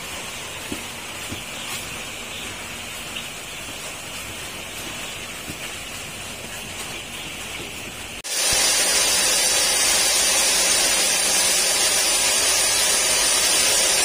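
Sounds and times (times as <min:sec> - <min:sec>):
chicks peeping: 0:00.6 - 0:08.1.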